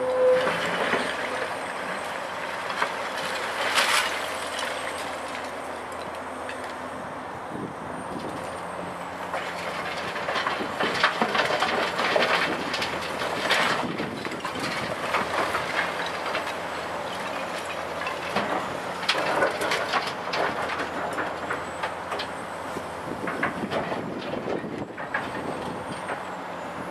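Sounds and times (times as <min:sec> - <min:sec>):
excavator diesel engine running: 0:00.0 - 0:26.9.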